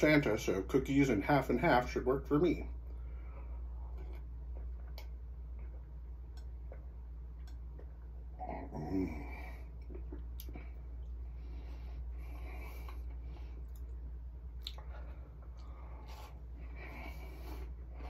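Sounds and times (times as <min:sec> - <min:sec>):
person chewing cookie: 0:03.2 - 0:11.3, 0:12.0 - 0:18.0.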